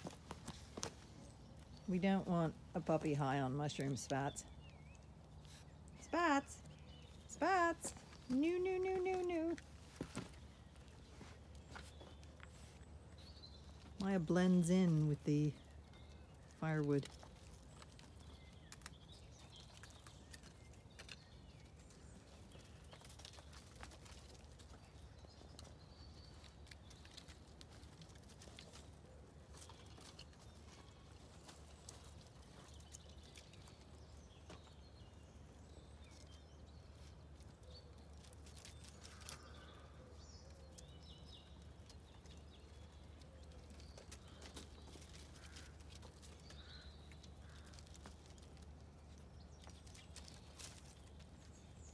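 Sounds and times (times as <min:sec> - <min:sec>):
puppies' claws scrambling over logs: 0:00.0 - 0:01.9, 0:15.7 - 0:34.9, 0:35.5 - 0:51.9.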